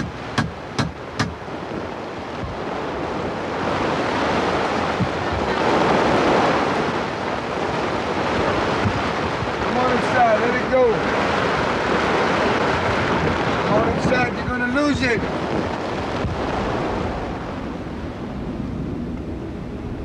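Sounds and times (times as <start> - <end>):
sharp taps: 0.0 - 1.4
plastic tarp flapping in wind: 0.1 - 19.8.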